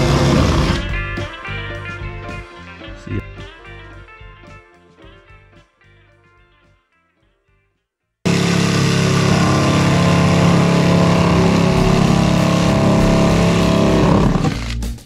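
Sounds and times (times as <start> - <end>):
drill-driven saw cutting panel: 0.0 - 0.8, 8.3 - 14.9.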